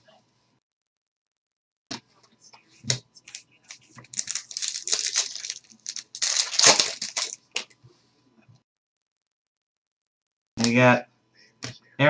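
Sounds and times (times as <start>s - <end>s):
foil wrapper tearing and crinkling: 3.3s - 7.7s.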